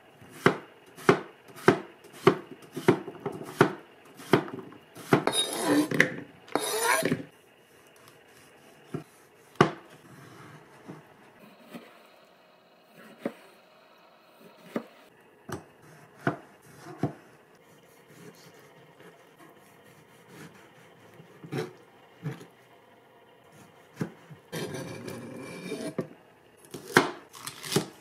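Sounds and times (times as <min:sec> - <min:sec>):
knife chopping on plastic board: 0:00.3 - 0:06.2, 0:08.9 - 0:09.9, 0:15.5 - 0:17.3, 0:23.9 - 0:24.8, 0:26.7 - 0:27.9
knife scraping board: 0:00.3 - 0:07.3, 0:08.0 - 0:12.1, 0:12.9 - 0:13.6, 0:14.5 - 0:15.0, 0:15.8 - 0:22.5, 0:23.6 - 0:26.2.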